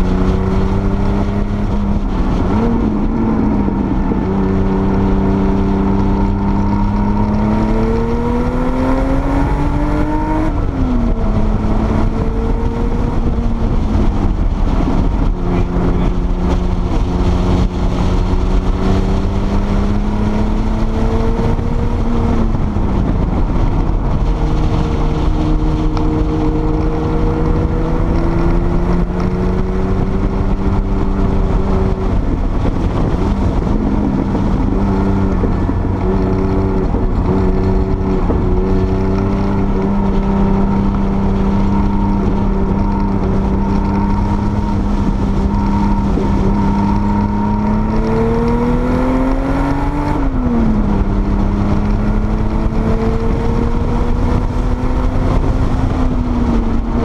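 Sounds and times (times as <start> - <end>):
car engine accelerating: 0.0 - 57.0
road and wind noise: 0.0 - 57.0.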